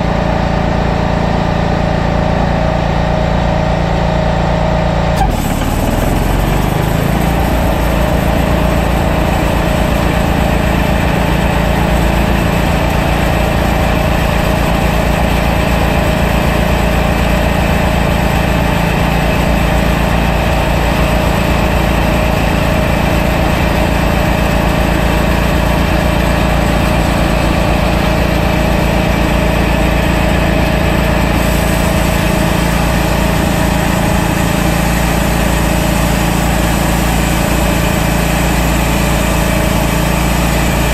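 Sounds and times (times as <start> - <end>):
sawmill engine running under load: 0.0 - 40.9
band blade cutting log: 5.2 - 40.9.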